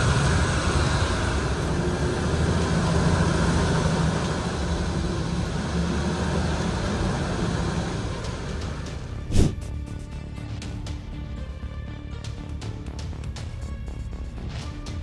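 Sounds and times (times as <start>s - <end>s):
tractor diesel engine under load: 0.0s - 9.6s.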